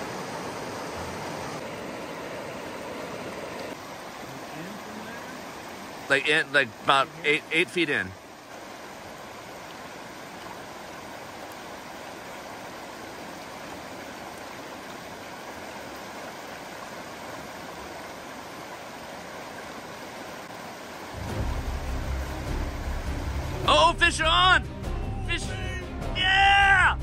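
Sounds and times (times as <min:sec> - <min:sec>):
river water rushing over rocks: 0:00.0 - 0:24.5
background music: 0:21.2 - 0:27.0.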